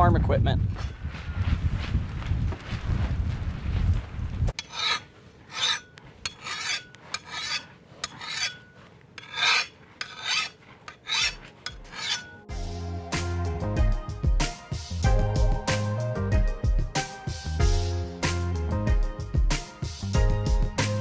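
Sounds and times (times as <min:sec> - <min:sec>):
metal file rasping on steel: 0:04.6 - 0:12.5
music: 0:12.4 - 0:21.0.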